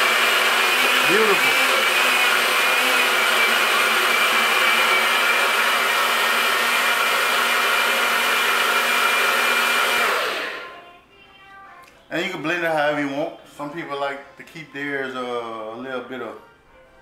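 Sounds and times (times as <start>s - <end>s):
blender motor running: 0.0s - 10.8s.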